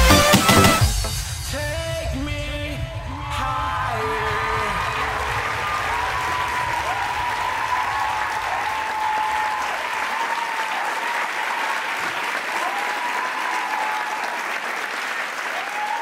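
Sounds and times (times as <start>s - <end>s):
audience applause: 3.9s - 16.0s.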